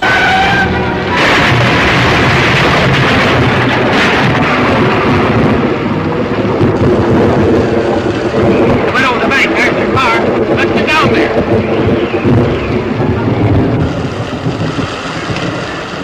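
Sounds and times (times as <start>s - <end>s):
car crashing and tumbling: 0.0s - 5.9s.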